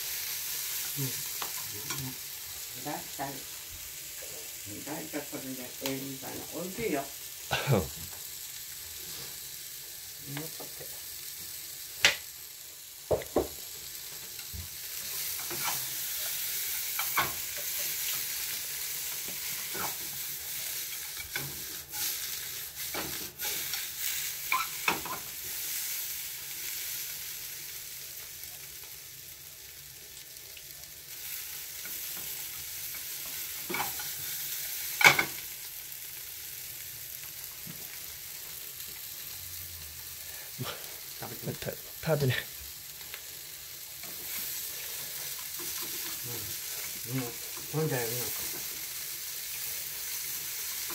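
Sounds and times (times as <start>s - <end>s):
food sizzling in a frying pan: 0.0s - 50.9s
utensil scraping against pan: 15.3s - 18.2s.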